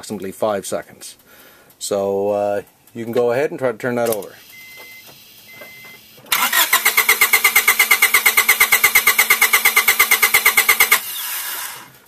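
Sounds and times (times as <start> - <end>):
engine cranking without firing: 6.3 - 12.0.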